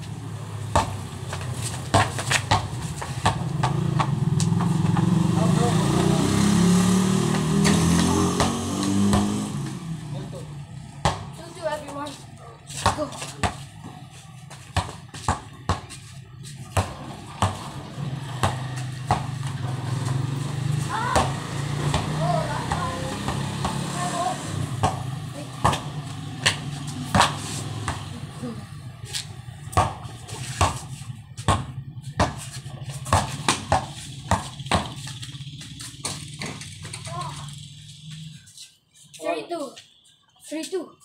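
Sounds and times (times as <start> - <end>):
basketball bouncing on concrete: 0.0 - 6.2, 7.1 - 37.4.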